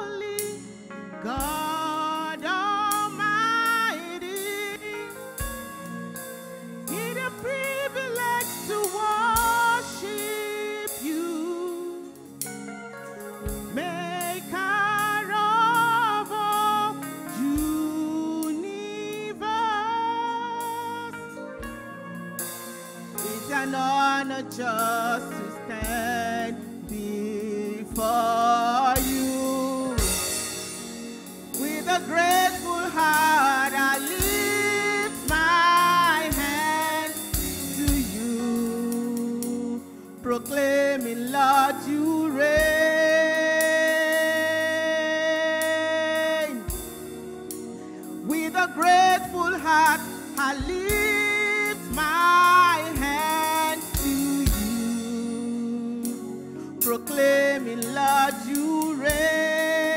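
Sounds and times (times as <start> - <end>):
instrumental backing with drum beat: 0.4 - 19.3, 20.6 - 59.9
woman singing gospel song: 6.9 - 12.2, 13.7 - 21.2, 23.3 - 30.4, 31.6 - 46.8, 48.2 - 55.3.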